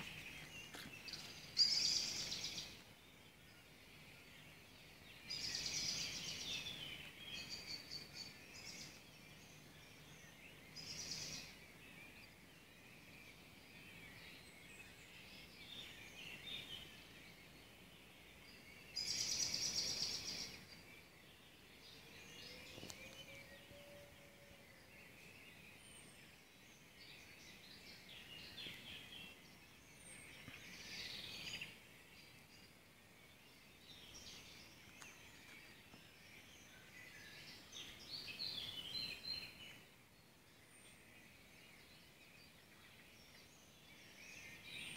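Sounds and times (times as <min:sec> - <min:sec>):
songbirds singing: 0:00.0 - 0:44.9.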